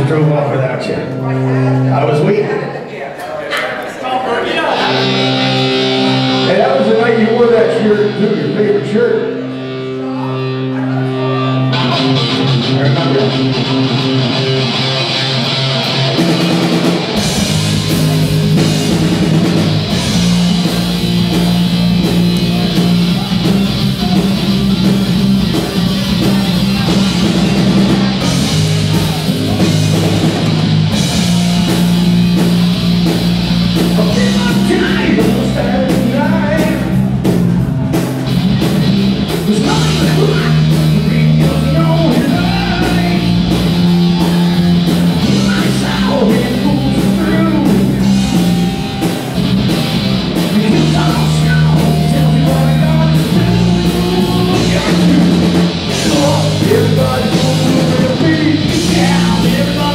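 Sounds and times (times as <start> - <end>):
distorted electric guitar: 0.0 - 2.6, 4.5 - 59.9
live rock band playing: 0.0 - 2.6, 4.4 - 59.9
drums: 4.4 - 59.9
person singing: 33.9 - 37.0, 39.4 - 49.3, 50.4 - 59.9.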